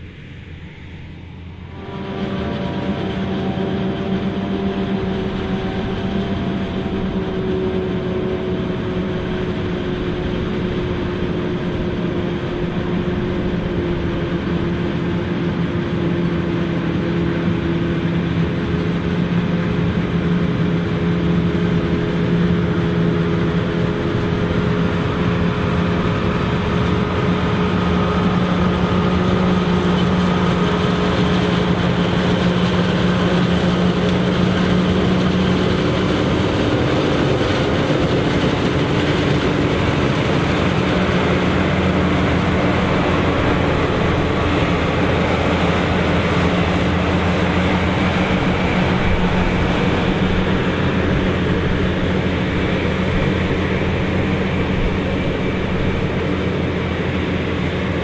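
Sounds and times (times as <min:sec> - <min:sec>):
steady hum: 0:00.0 - 0:16.0
heavy engine drone: 0:00.0 - 0:58.0.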